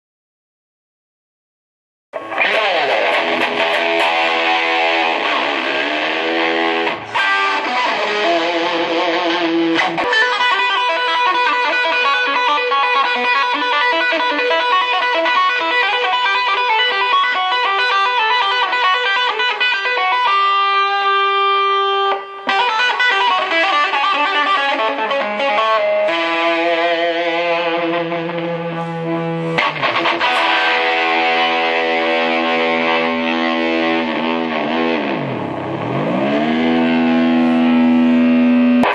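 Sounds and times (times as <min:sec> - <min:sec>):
electric guitar through amplifier: 0:02.2 - 0:38.9.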